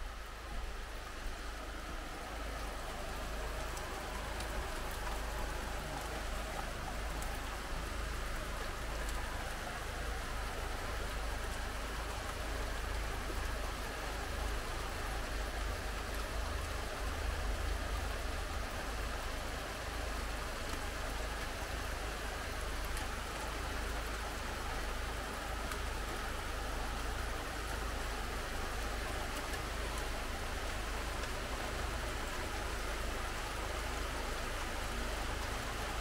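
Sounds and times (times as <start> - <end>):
steady rain falling: 0.0 - 36.0
raindrops ticking: 1.5 - 13.2.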